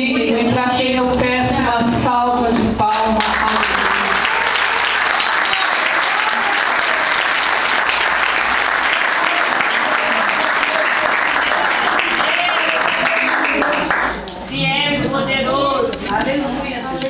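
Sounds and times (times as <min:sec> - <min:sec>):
congregation applauding: 0:02.9 - 0:14.3.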